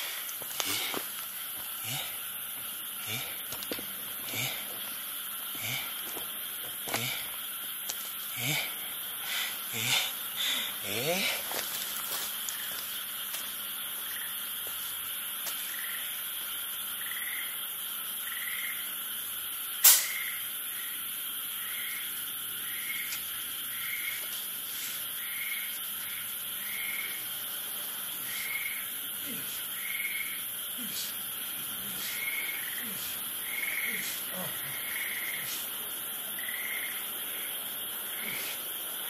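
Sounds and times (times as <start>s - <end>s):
steady high hiss: 0.0s - 39.0s
sharp click: 19.8s - 20.2s.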